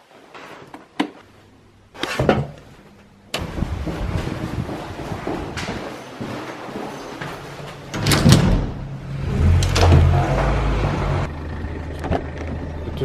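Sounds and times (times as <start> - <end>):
door handling noise: 7.9 - 10.6.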